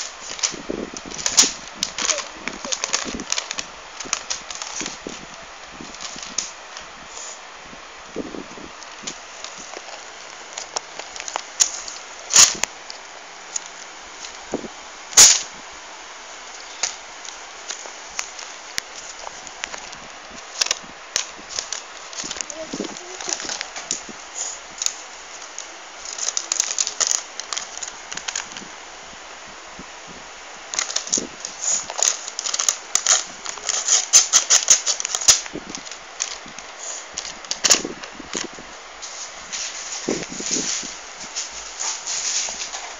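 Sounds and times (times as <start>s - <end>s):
plastic toy striking paper: 0.0s - 5.2s, 9.1s - 14.4s, 15.2s - 15.5s, 16.7s - 28.6s, 30.7s - 38.5s
paper crinkling: 0.0s - 7.4s, 8.4s - 15.6s, 16.5s - 28.8s, 30.7s - 42.9s
sharp crackles: 0.0s - 42.9s
steady hiss: 0.0s - 42.9s.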